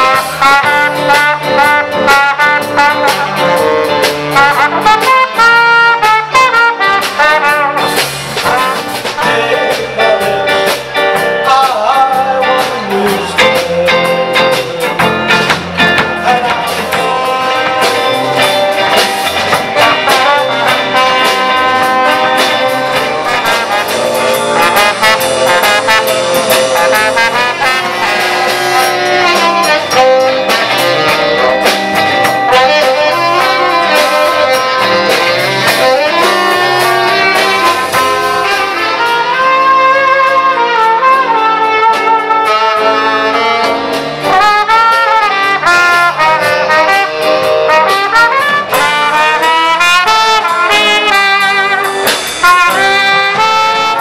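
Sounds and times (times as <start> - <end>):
drums: 0.0 - 54.0
guitar: 0.0 - 54.0
saxophone: 0.0 - 54.0
trombone: 0.0 - 54.0.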